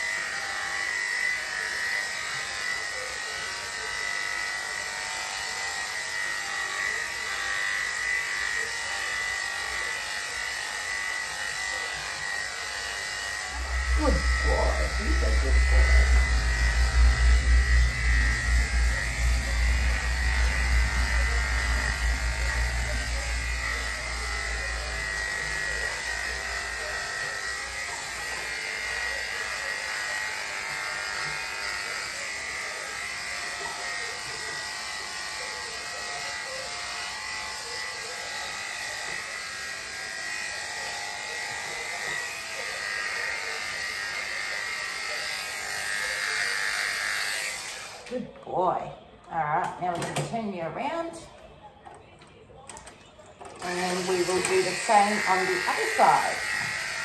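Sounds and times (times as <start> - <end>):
electric clippers buzzing: 0.0 - 48.1, 53.4 - 57.0
low rumble: 13.4 - 26.7.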